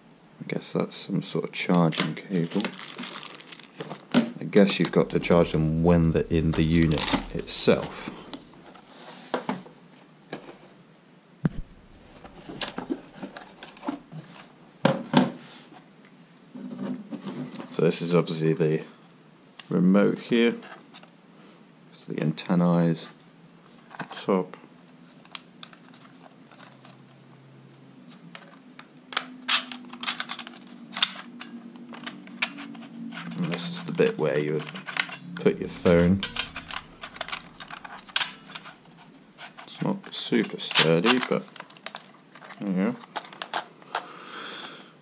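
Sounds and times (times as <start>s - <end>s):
low thump on table: 11.5s - 11.9s.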